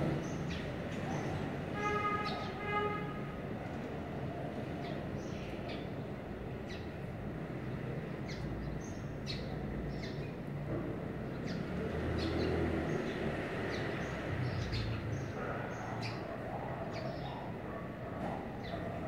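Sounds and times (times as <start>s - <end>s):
small birds chirping: 8.1s - 10.5s, 11.3s - 19.0s.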